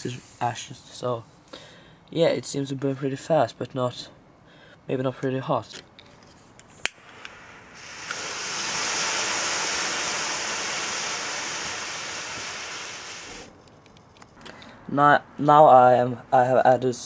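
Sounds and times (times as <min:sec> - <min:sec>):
thermite burning with rushing hiss: 0:06.9 - 0:13.5.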